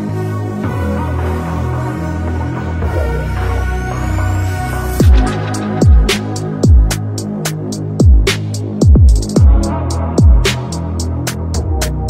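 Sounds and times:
electronic music: 0:00.0 - 0:12.0
sustained bass line: 0:00.0 - 0:12.0
deep kick drum: 0:05.0 - 0:07.0, 0:08.0 - 0:10.5
hi-hat ticks: 0:05.0 - 0:12.0.

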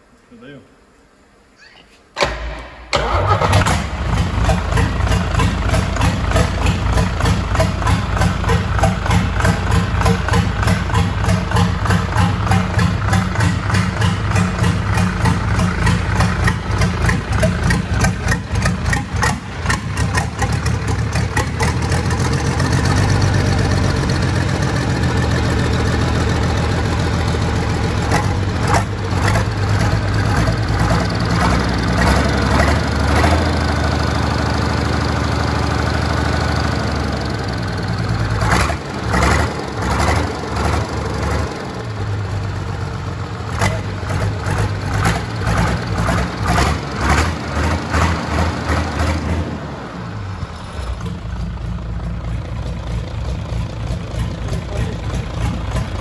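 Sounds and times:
diesel engine running: 0:02.2 - 0:56.0.

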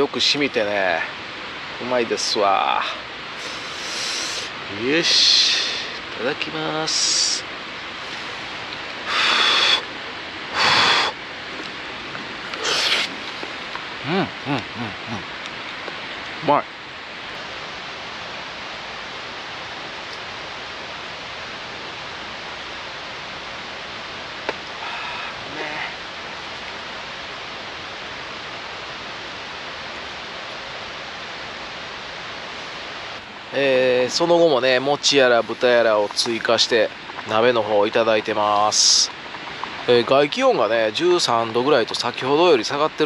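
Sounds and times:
steady background hiss: 0:00.0 - 0:43.0
water rushing: 0:00.0 - 0:43.0
breathy mouth sounds: 0:12.5 - 0:13.5.

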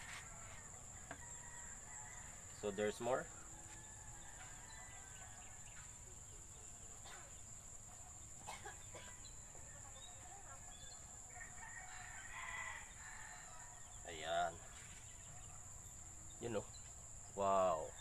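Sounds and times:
rooster crowing: 0:00.0 - 0:05.9, 0:09.8 - 0:14.2.

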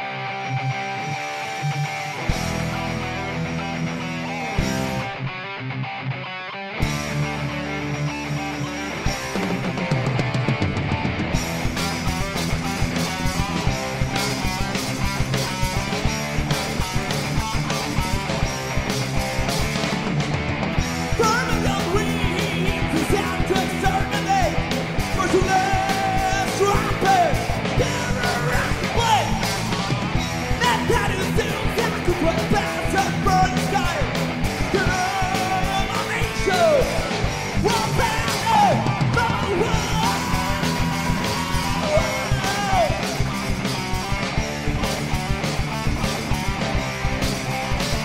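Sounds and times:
heavy metal band playing live: 0:00.0 - 0:48.0
person singing and yelling: 0:21.0 - 0:43.6.

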